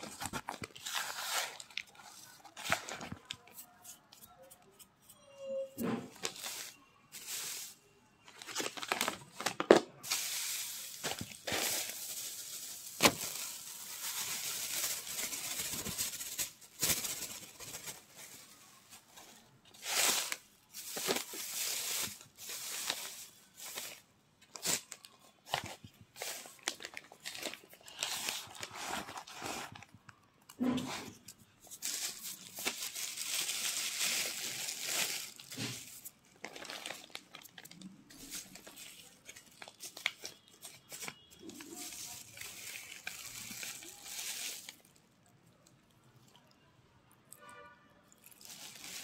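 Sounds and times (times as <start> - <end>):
foil wrapper crinkling: 0.0 - 3.7, 6.2 - 30.0, 31.6 - 45.0, 48.3 - 49.0.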